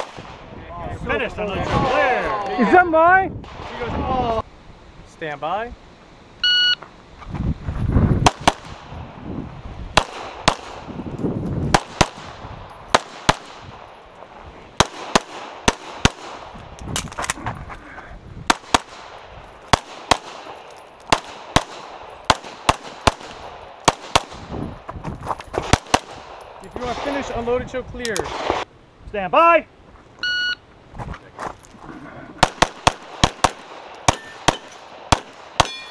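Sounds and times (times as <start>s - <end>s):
rapid pistol fire: 8.2s - 8.9s, 10.0s - 10.9s, 11.7s - 13.8s, 14.8s - 16.5s, 18.5s - 24.5s, 25.6s - 27.2s, 32.4s - 35.8s.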